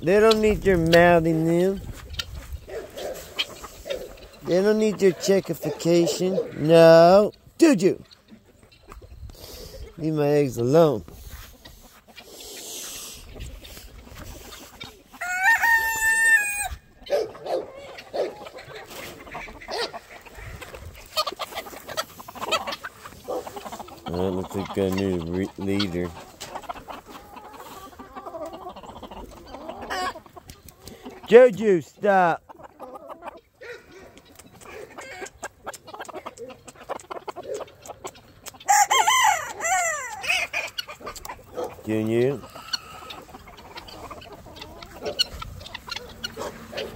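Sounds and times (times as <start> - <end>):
chickens clucking: 0.0 - 46.9
rooster crowing: 15.2 - 16.8, 38.7 - 40.4.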